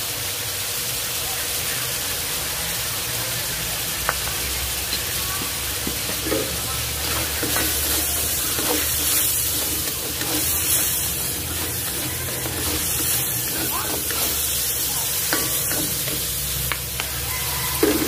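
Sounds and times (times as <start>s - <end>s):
shrimp sizzling in a pan: 0.0s - 18.0s
utensil scraping a pan: 5.4s - 16.6s, 17.6s - 18.0s.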